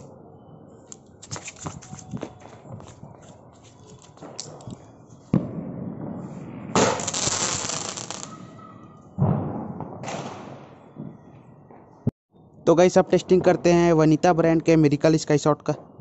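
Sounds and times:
firework bang: 5.3s - 11.8s
firework hiss: 6.4s - 8.4s.

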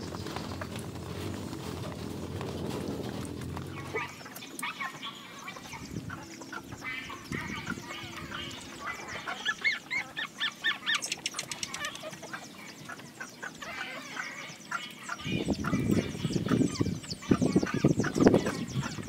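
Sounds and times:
puppies squeaking and whining: 3.7s - 12.9s.

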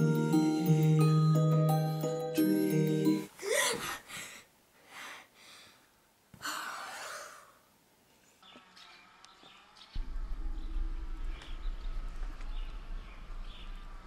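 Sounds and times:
girl breathing: 3.3s - 7.6s
girl gasping: 3.4s - 5.8s
low outdoor rumble: 10.0s - 14.0s.

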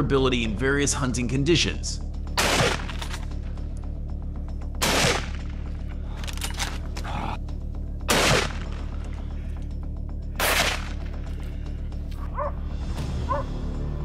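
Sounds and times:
background music: 0.0s - 14.0s
rifle shots: 2.4s - 3.2s, 4.8s - 5.6s, 8.1s - 8.8s, 10.4s - 11.0s.

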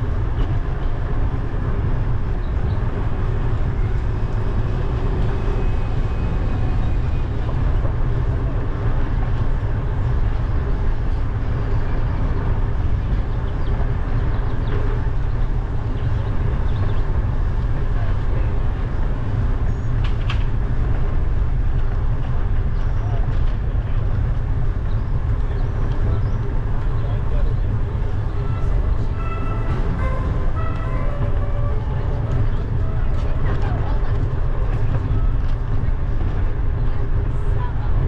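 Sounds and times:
wind rumbling on microphone: 0.0s - 38.0s
brief high-pitched sound: 28.4s - 33.2s.

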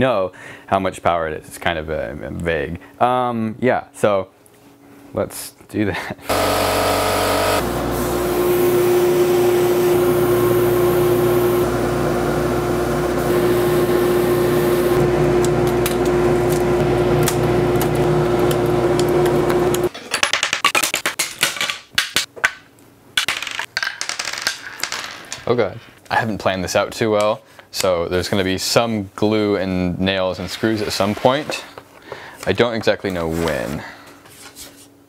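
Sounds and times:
laser cutter humming: 6.3s - 19.9s.

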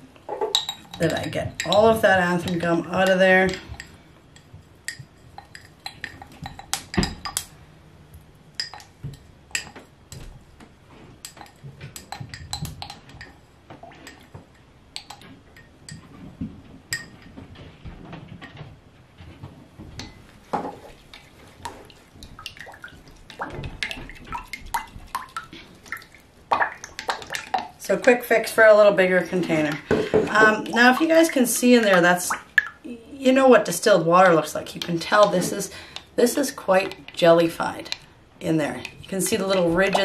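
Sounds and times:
glassware clinking: 0.3s - 1.9s, 16.9s - 17.3s
splash: 22.4s - 27.7s.

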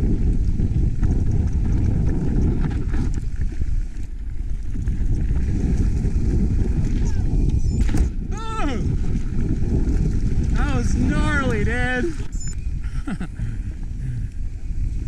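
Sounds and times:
mountain bike rattling on rough trail: 0.0s - 8.2s, 9.0s - 11.6s
wind buffeting microphone: 0.0s - 15.0s.

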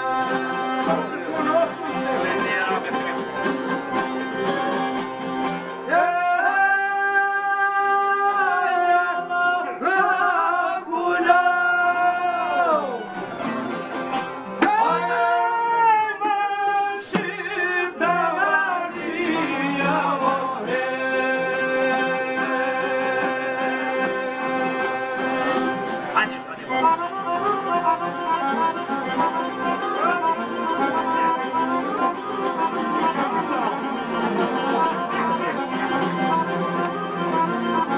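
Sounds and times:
men singing: 0.0s - 2.8s, 5.9s - 13.0s, 14.6s - 26.1s
accordion: 0.0s - 6.7s, 11.8s - 15.6s, 17.1s - 37.9s
plucked lutes: 12.8s - 15.4s, 17.0s - 37.9s.

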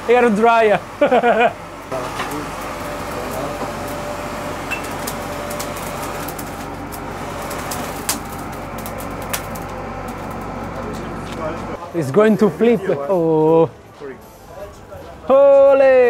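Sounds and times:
embers crackling and popping: 0.1s - 11.8s.

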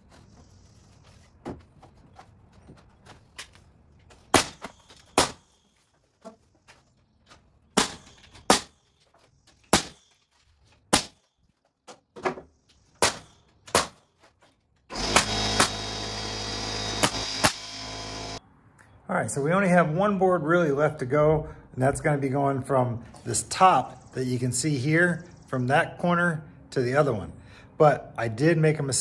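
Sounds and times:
air nailer shots: 14.9s - 18.4s
loud motor noise: 14.9s - 18.4s.

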